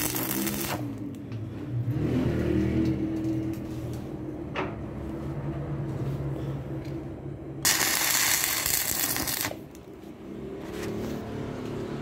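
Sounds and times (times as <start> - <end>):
welding arc crackling: 0.0 - 1.2, 7.6 - 10.0.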